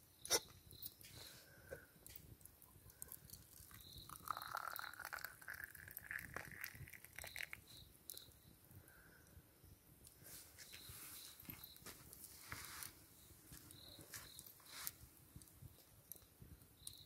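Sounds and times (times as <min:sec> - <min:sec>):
liquid pouring into cup: 0:02.8 - 0:08.2.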